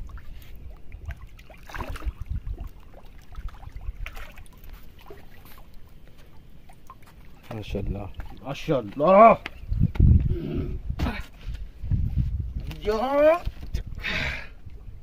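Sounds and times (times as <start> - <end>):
fish splashing at water surface: 0.0 - 8.6.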